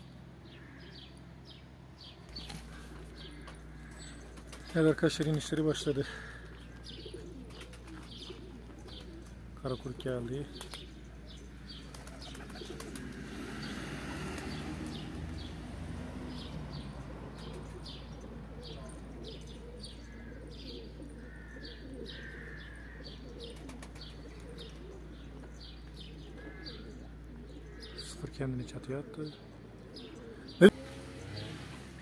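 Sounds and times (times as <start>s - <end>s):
pigeons cooing: 0.0s - 32.0s
wings flapping: 2.3s - 3.6s, 4.2s - 5.6s, 7.3s - 9.3s, 10.5s - 10.9s, 11.8s - 13.3s, 23.5s - 24.5s.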